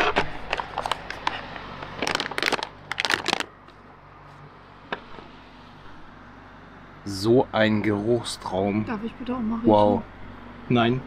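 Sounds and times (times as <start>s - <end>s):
foil pouch crinkling: 0.4s - 3.6s.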